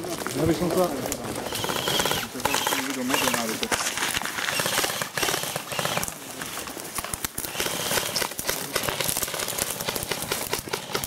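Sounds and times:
airsoft rifles firing: 1.4s - 11.0s.

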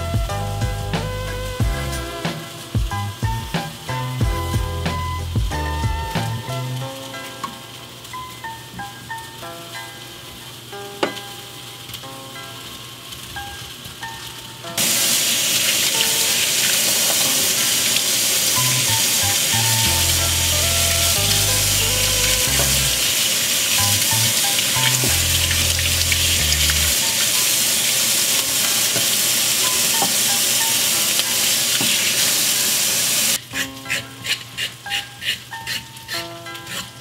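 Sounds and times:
faucet water splashing in sink: 14.8s - 33.4s.

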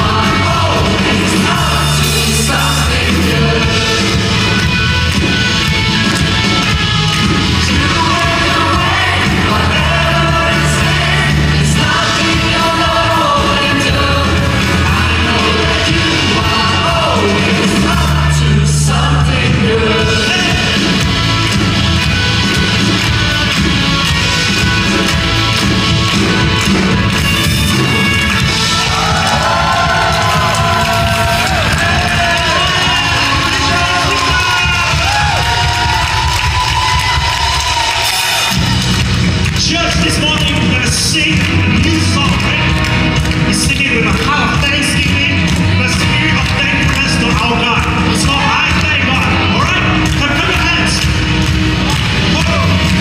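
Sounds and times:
amplified singing: 0.0s - 5.5s, 7.2s - 21.6s, 27.9s - 38.7s, 39.4s - 51.0s
held bass notes: 0.0s - 53.0s.

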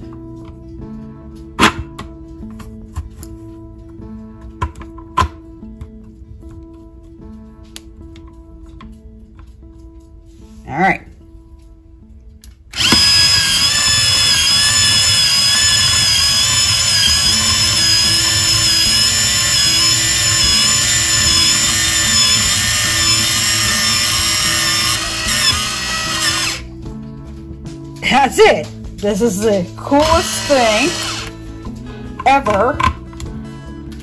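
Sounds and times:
apple peeler motor whine: 12.7s - 26.7s, 30.0s - 31.4s.

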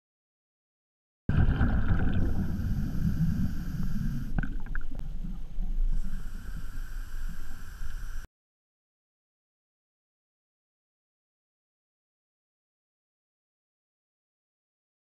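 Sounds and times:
exhaled bubbles rumbling: 1.3s - 6.7s
diver breathing through regulator: 2.0s - 4.8s, 5.8s - 8.3s.

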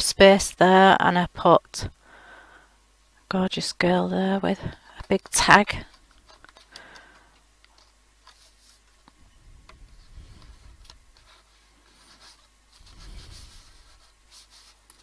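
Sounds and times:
paper rustling: 7.7s - 9.2s, 10.0s - 15.0s.

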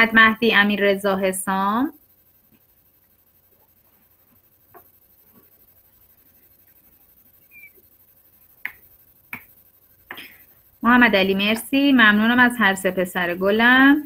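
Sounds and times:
faint clicks and taps: 2.5s - 7.0s.

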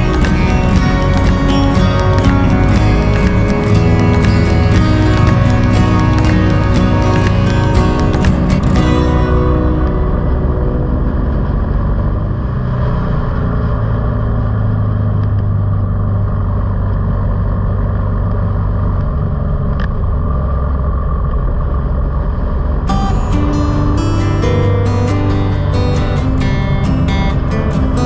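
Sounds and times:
guitar music: 0.0s - 15.3s, 22.8s - 28.0s
car engine and road noise: 0.0s - 28.0s.

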